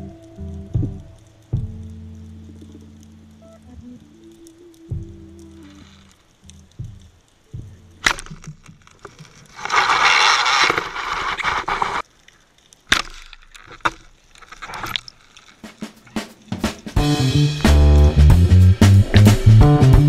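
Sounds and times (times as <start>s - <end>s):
underwater rushing noise: 2.5s - 12.2s
clicks and knocks underwater: 5.0s - 17.0s.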